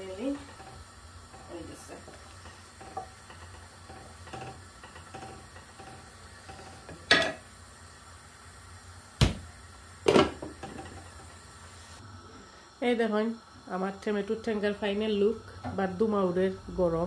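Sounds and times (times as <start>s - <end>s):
kitchen utensils clattering: 0.3s - 7.4s.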